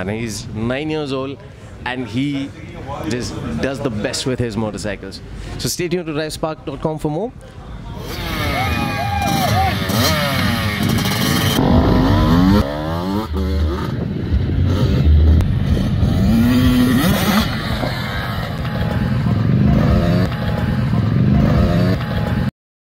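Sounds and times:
motocross bike engine revving: 8.0 - 22.5.

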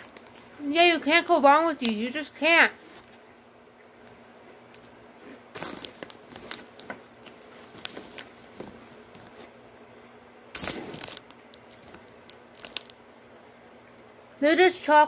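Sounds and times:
plastic snack bag crinkling: 0.0 - 3.2, 5.5 - 9.5, 10.5 - 13.2.

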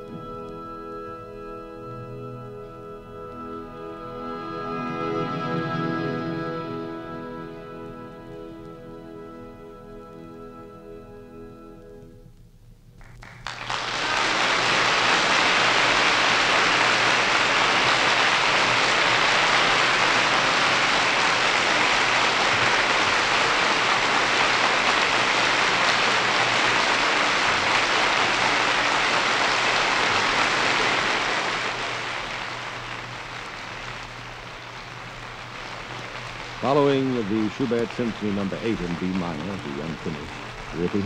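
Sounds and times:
audience applauding: 13.0 - 41.0.

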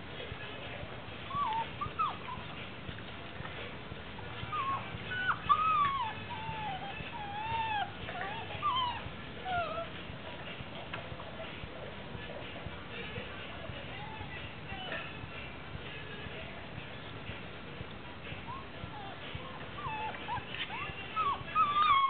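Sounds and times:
puppies whining: 1.1 - 12.6, 13.8 - 15.5, 18.2 - 22.0.

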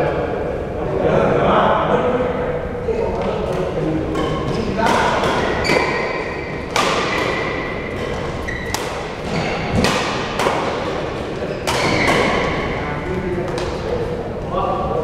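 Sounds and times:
rackets hitting shuttlecock: 3.2 - 12.8, 13.4 - 13.9.

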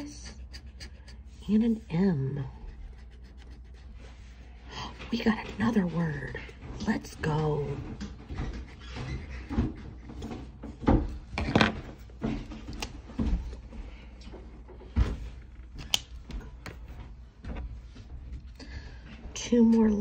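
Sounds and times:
marker scraping on ticket: 0.0 - 4.4.

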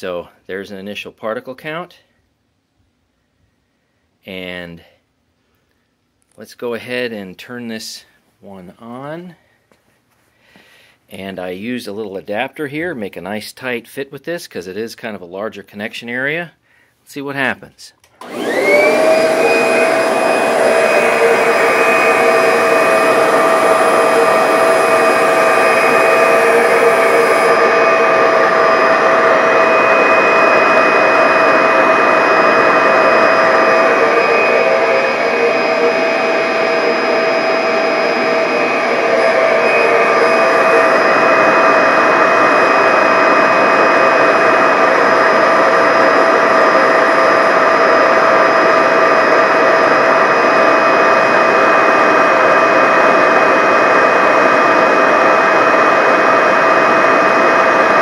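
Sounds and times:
vacuum cleaner motor whine: 18.2 - 58.0.

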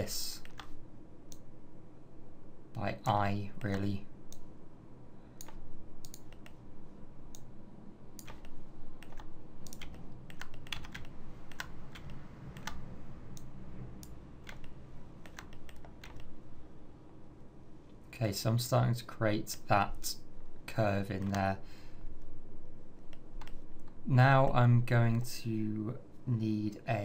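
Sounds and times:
faint low hum: 0.0 - 27.0
computer mouse and keyboard clicks: 0.4 - 1.5, 3.6 - 4.5, 5.4 - 6.6, 8.2 - 16.4, 21.1 - 21.5, 23.0 - 24.0.

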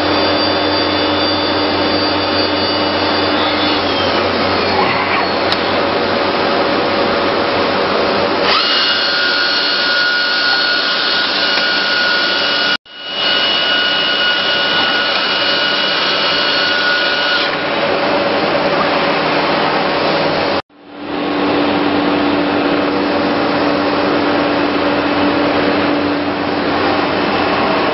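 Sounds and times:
router spindle whine: 0.0 - 20.6.

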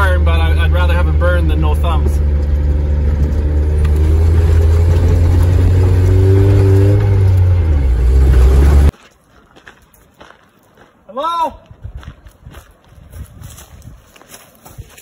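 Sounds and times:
truck engine and road rumble: 0.0 - 9.6.

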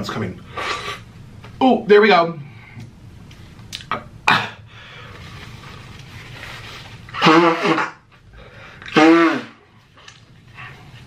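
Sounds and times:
man sneezing: 7.2 - 8.0, 8.9 - 9.6.

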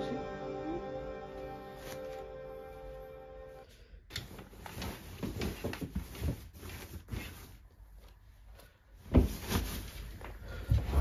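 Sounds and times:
padded jacket rustling: 4.2 - 11.0.

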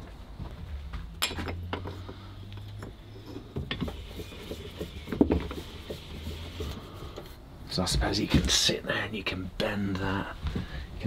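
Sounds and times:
metal clank: 1.2 - 2.1.

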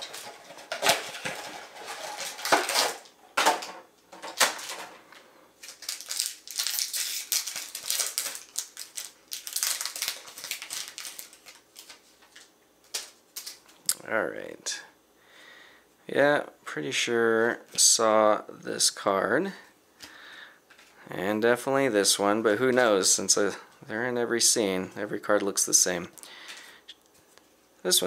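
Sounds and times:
packaging crinkling and tearing: 0.0 - 3.1, 4.3 - 4.8, 5.6 - 13.8.

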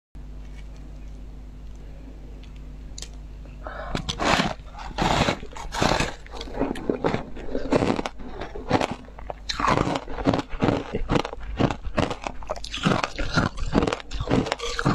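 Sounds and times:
ice crunching in mouth: 3.9 - 14.9.

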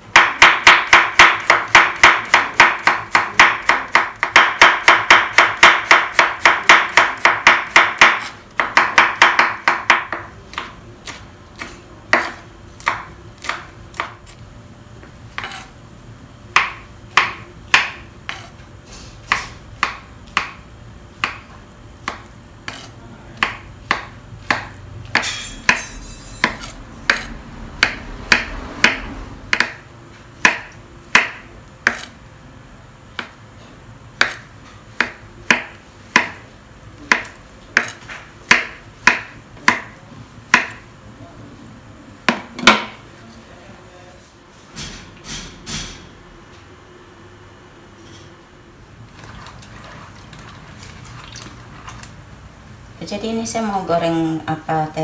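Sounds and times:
knife chopping on wooden board: 0.1 - 14.3, 15.4 - 15.7, 16.5 - 18.5, 19.2 - 20.6, 21.2 - 29.8, 30.4 - 32.2, 34.2 - 36.4, 37.1 - 40.8, 42.3 - 43.0.

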